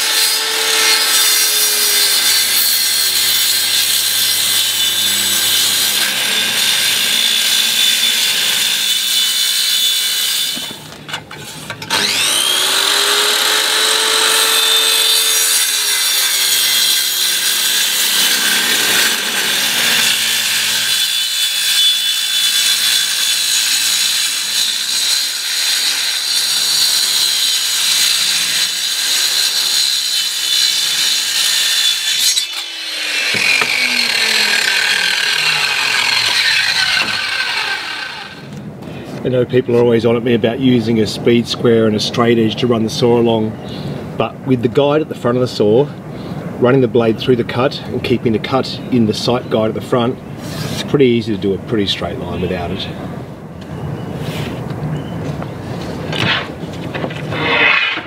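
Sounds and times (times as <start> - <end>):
circular saw cutting plastic: 11.4 - 38.5, 57.2 - 58.0.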